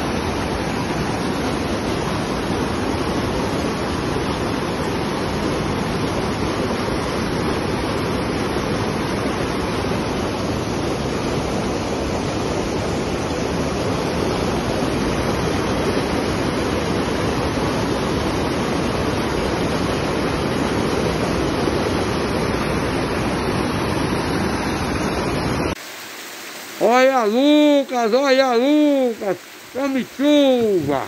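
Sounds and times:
water rushing over spillway: 0.0 - 31.0.

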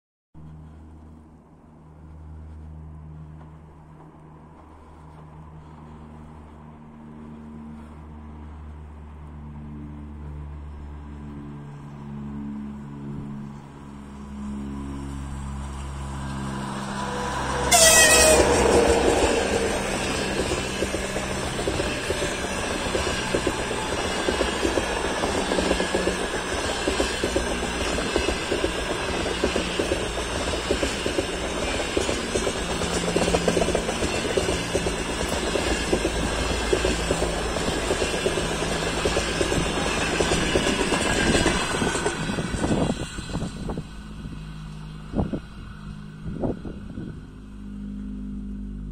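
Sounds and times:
locomotive rushing past: 0.4 - 48.9
train wheels clattering over rail joints: 17.8 - 43.8.

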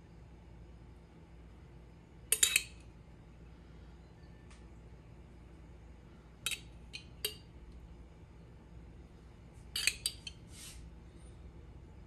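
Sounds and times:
spoon clinking against dish: 2.3 - 2.8, 6.5 - 7.5, 9.8 - 10.4
spoon scraping: 2.3 - 2.8, 6.5 - 7.4, 9.7 - 10.8.

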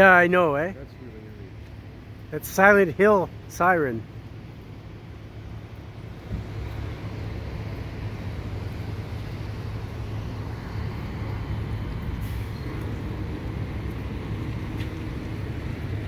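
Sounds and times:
street noise: 0.0 - 16.0
wind hiss: 4.1 - 16.0.

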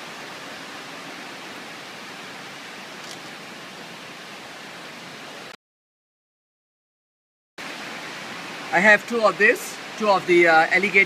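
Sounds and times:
background hiss: 7.6 - 11.0.

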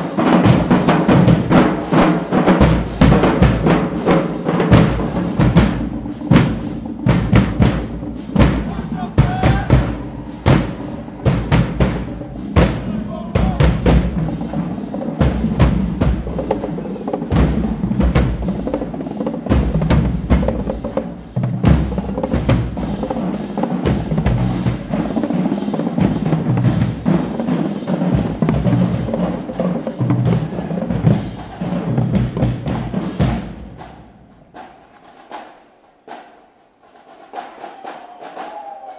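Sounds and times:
bass drums: 0.0 - 27.3
snare drums: 0.0 - 38.9.

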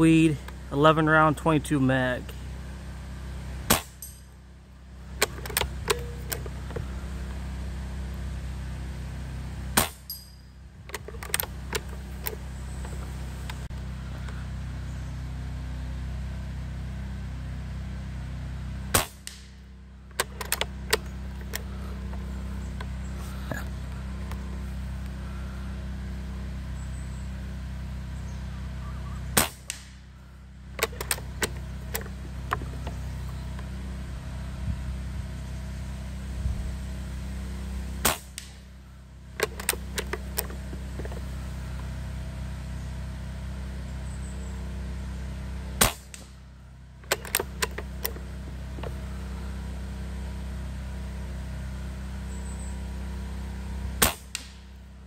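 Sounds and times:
air rifle shot crack: 3.7 - 4.0, 18.9 - 19.5, 29.4 - 30.0, 45.8 - 46.4, 54.0 - 54.6
rifle bolt clicks: 20.2 - 21.7, 30.8 - 32.9, 39.4 - 41.2, 47.1 - 48.2
wind rumble on microphone: 34.5 - 35.3, 36.4 - 36.8.

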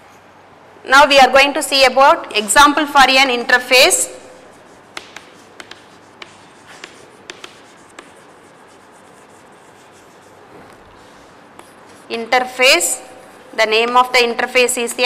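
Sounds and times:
chalk tapping and scratching: 4.4 - 14.1.

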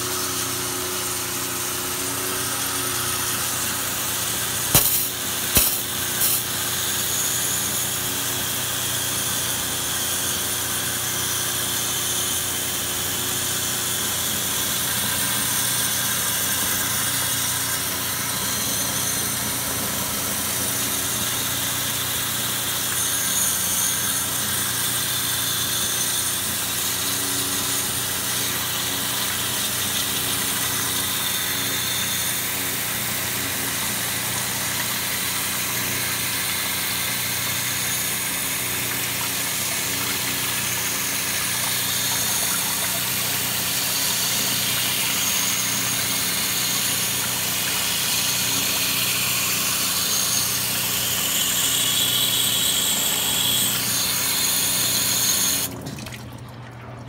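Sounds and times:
water jet hissing: 0.0 - 8.8, 25.3 - 56.0
pressure washer pump humming: 0.0 - 57.0.

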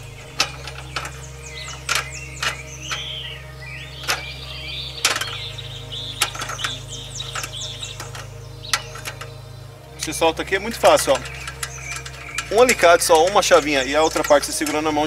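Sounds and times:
birds chirping: 0.0 - 15.0
pliers clicking on metal: 6.2 - 9.4, 10.9 - 15.0.

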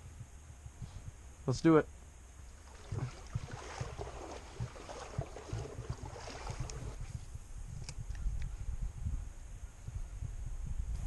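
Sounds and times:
wind buffeting microphone: 2.4 - 11.0.

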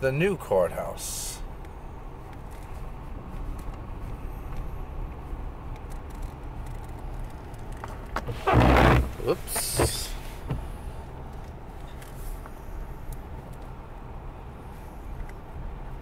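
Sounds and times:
car cabin road rumble: 0.0 - 16.0
windshield wiper swish: 8.2 - 10.8.

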